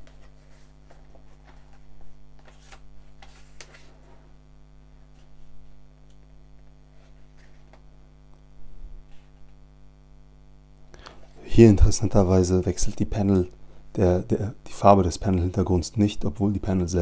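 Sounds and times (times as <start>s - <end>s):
comic book pages turning: 0.0s - 4.4s, 6.9s - 7.9s
low electrical hum: 0.0s - 17.0s.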